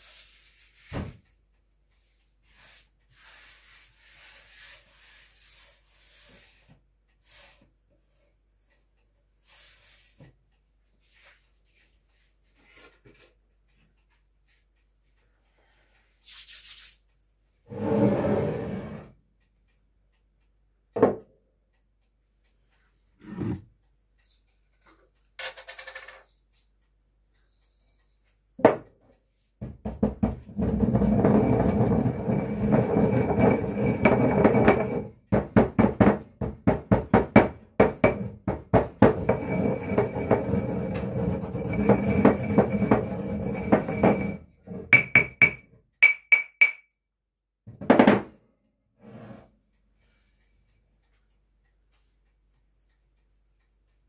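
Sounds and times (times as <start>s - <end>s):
pestle pounding strikes: 29.6s - 39.4s
pestle knocking against bowl: 29.6s - 44.4s, 45.0s - 46.8s
pestle grinding in stone mortar: 29.8s - 44.4s.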